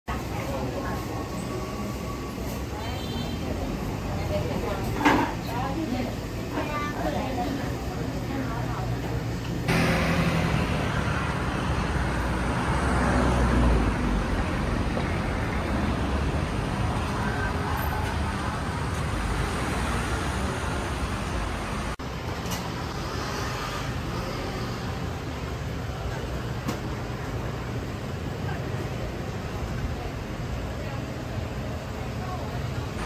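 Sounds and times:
passing cars and scooters: 0:09.6 - 0:28.8.

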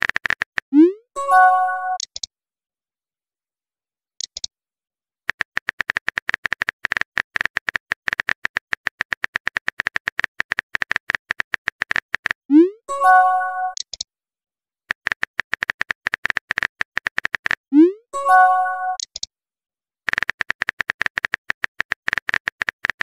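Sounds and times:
multi-tone chime: 0:01.2 - 0:02.0, 0:12.9 - 0:13.8, 0:18.2 - 0:19.0
keyboard typing clicks: 0:01.3 - 0:02.3, 0:04.2 - 0:04.5, 0:05.3 - 0:14.1, 0:14.9 - 0:17.7, 0:18.4 - 0:19.3, 0:20.1 - 0:23.0.

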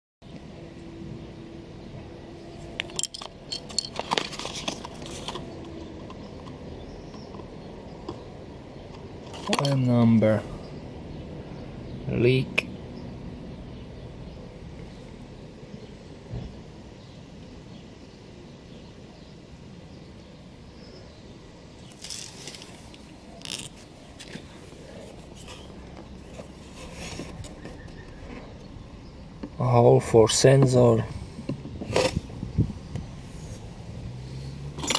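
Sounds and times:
faint steady background noise: 0:00.2 - 0:34.9
low outdoor background noise: 0:00.2 - 0:34.9
scraping and rustling: 0:02.5 - 0:06.6, 0:21.8 - 0:28.6
light plastic clicks and clinks: 0:02.8 - 0:06.2.

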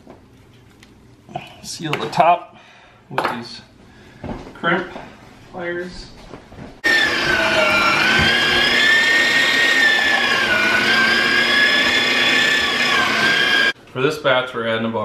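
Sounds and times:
electric meat grinder motor whine: 0:06.8 - 0:13.8.

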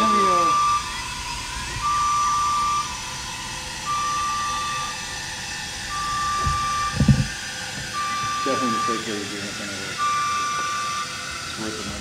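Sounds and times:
scissor lift alarm beeping: 0:00.0 - 0:07.3, 0:07.9 - 0:09.2, 0:10.0 - 0:11.3
low thuds: 0:06.0 - 0:08.5.

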